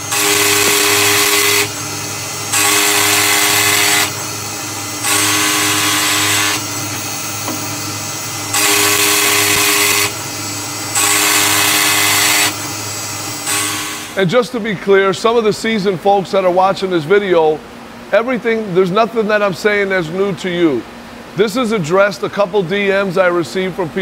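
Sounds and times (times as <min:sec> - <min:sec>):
lathe milling whine: 0:00.0 - 0:14.2
machine hum: 0:00.0 - 0:24.0.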